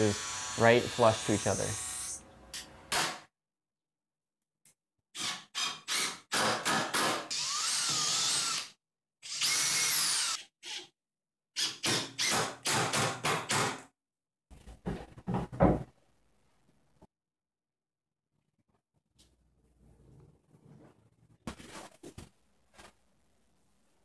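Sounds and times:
cordless drill boring into wood: 5.2s - 10.9s.

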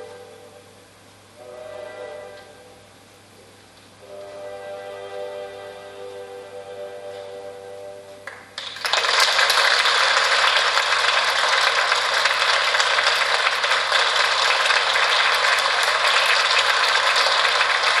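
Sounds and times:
audience applauding: 8.2s - 18.0s.

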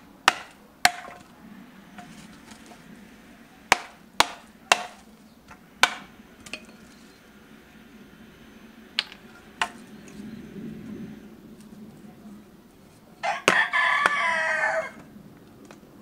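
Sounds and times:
hammer striking metal: 0.3s - 1.2s, 3.7s - 5.1s, 5.8s - 6.8s, 9.0s - 9.8s.

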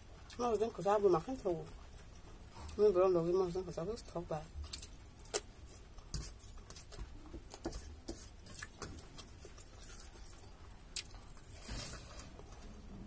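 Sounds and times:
fingers mixing rice on steel plate: 4.7s - 10.6s
chewing smacks: 8.5s - 11.5s.

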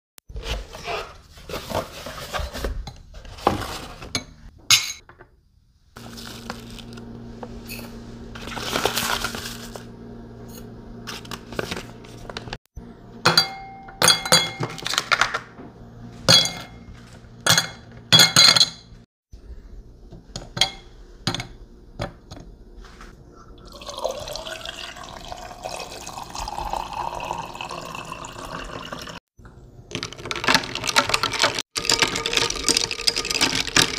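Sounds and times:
spoon clinking on glass: 13.3s - 14.7s
water pouring over ice: 23.6s - 29.2s, 31.8s - 33.9s
ice dropping into glass: 30.0s - 33.9s.

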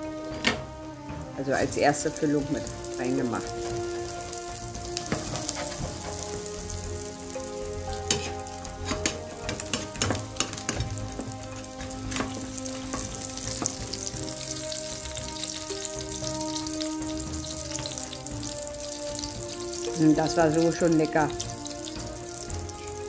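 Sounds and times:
egg sizzling in frying pan: 1.4s - 23.0s
metal utensils scraping pan: 5.0s - 6.5s, 8.0s - 13.8s.

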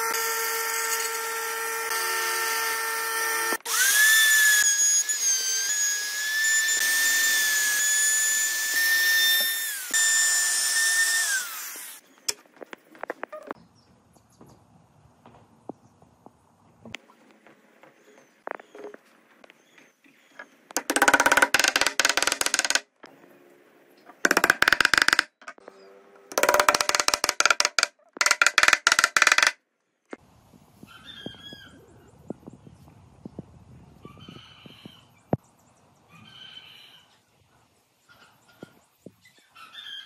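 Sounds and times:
wooden mallet hammering wood: 24.3s - 25.4s.

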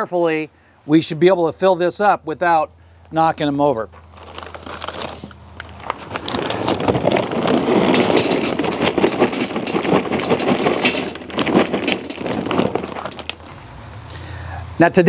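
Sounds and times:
charcoal briquettes clattering: 3.2s - 15.0s.

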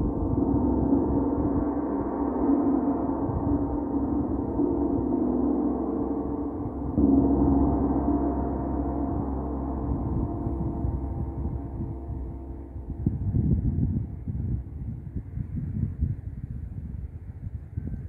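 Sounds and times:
gong ringing: 0.0s - 13.7s.

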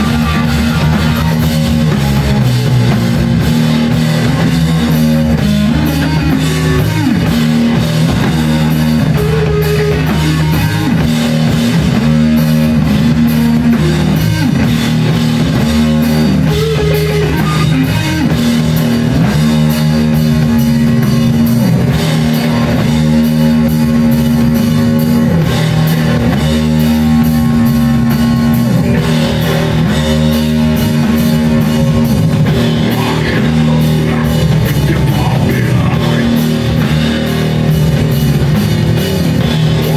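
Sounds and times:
bass guitar riff: 0.0s - 39.9s
distorted electric guitar: 0.0s - 39.9s
pounding drum kit: 0.0s - 39.9s.

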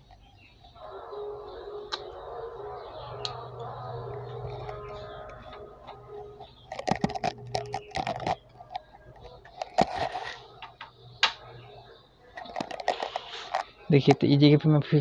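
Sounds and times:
handling clicks and taps: 4.4s - 11.4s.

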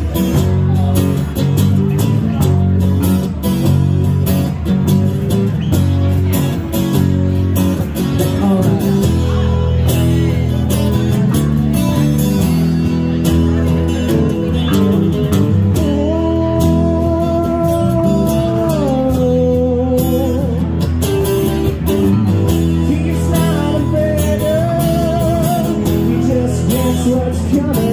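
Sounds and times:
electric bass line: 0.0s - 27.9s
strummed acoustic guitar: 0.0s - 27.9s.

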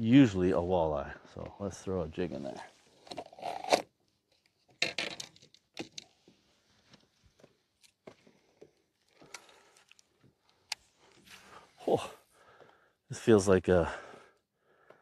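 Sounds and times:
fishing rod clicks and rattles: 3.0s - 6.2s.

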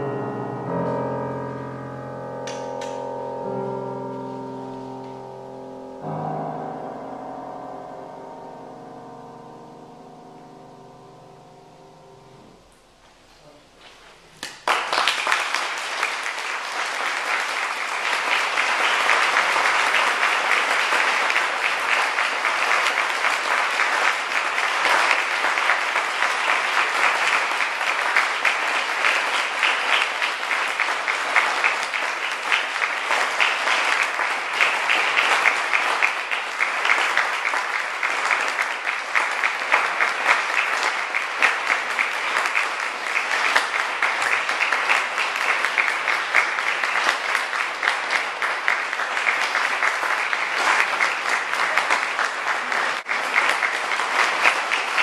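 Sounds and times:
audience applauding: 2.4s - 3.3s, 14.4s - 55.0s.

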